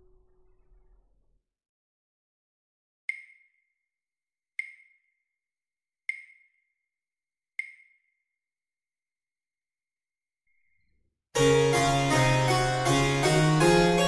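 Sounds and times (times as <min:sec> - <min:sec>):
metronome clicks: 0:03.1 - 0:03.5, 0:04.6 - 0:05.0, 0:06.1 - 0:06.5, 0:07.6 - 0:08.0.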